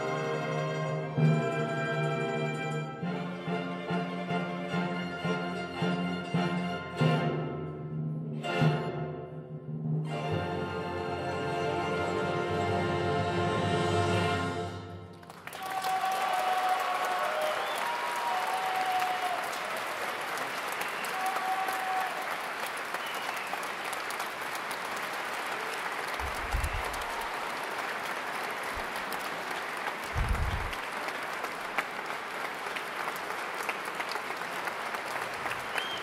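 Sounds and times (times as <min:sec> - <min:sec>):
audience applauding: 0:15.2 - 0:36.0.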